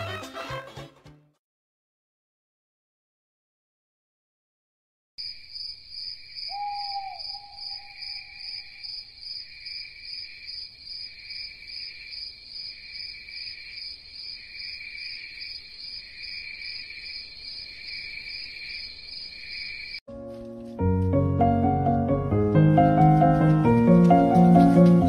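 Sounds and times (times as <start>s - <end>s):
crickets chirring: 5.2s - 20.0s.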